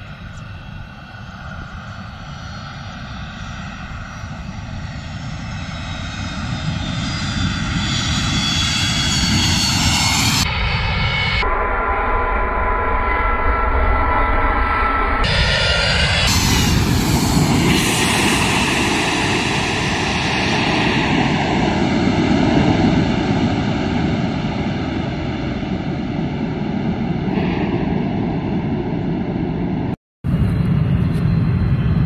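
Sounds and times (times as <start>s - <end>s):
jet plane taking off: 0.0s - 32.0s.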